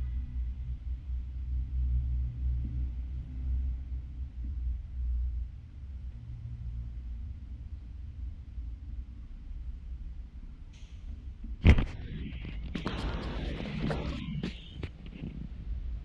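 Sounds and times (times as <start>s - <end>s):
low fluctuating rumble: 0.0s - 16.0s.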